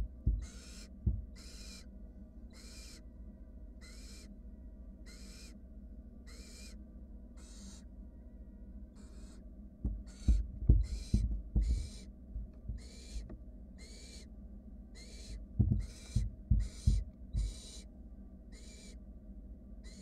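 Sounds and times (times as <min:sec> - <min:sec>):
low thumps and scuffs: 0:00.0 - 0:01.4, 0:09.8 - 0:13.3, 0:15.4 - 0:17.6
owl nestlings hissing calls: 0:00.3 - 0:01.9, 0:02.5 - 0:03.0, 0:03.8 - 0:04.3, 0:05.0 - 0:05.6, 0:06.3 - 0:06.8, 0:07.4 - 0:07.9, 0:09.0 - 0:09.4, 0:10.0 - 0:12.1, 0:12.7 - 0:14.3, 0:14.9 - 0:17.9, 0:18.5 - 0:19.0.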